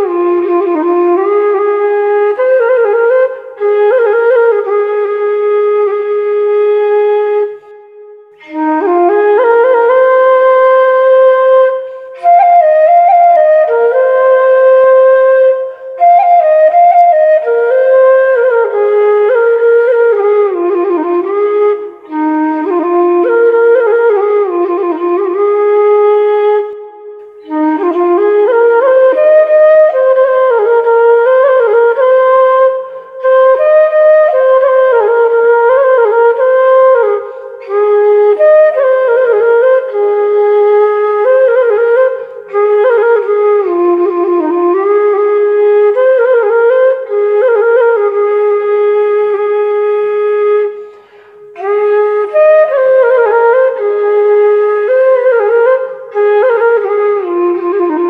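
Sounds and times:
solo flute melody: 0:00.0 - 0:58.0.

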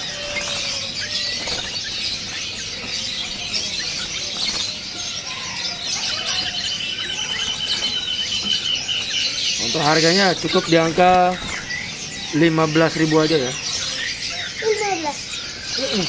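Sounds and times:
wings fluttering in cage: 0:00.0 - 0:12.0
songbirds chirping: 0:00.0 - 0:16.0.

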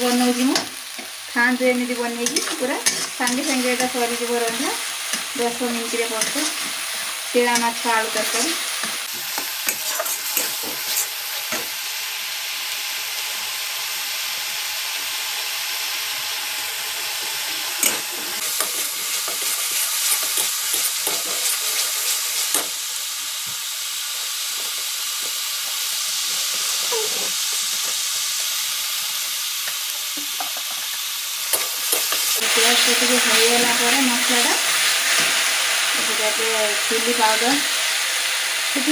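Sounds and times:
paste sizzling in oil: 0:00.0 - 0:38.9
metal spatula scraping pan: 0:09.7 - 0:11.2.

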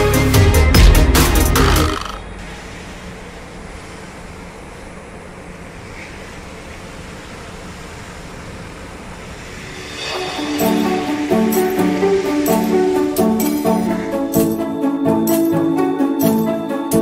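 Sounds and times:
music: 0:00.0 - 0:02.2, 0:09.8 - 0:17.0
harbour noise: 0:00.0 - 0:17.0
wind: 0:01.9 - 0:12.6.

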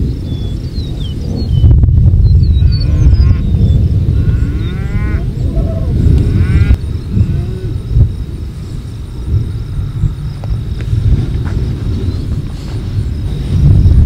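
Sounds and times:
loud low rumble: 0:01.2 - 0:14.0
cattle mooing: 0:02.6 - 0:07.8.

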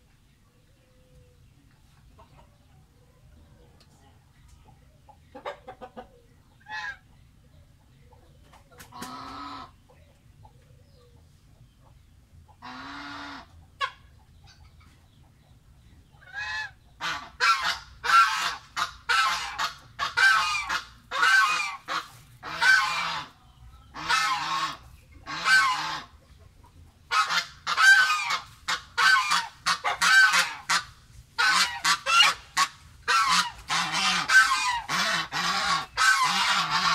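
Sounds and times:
goose honking: 0:09.0 - 0:09.7, 0:12.6 - 0:14.0, 0:16.2 - 0:23.4, 0:24.0 - 0:26.1, 0:27.1 - 0:36.9.

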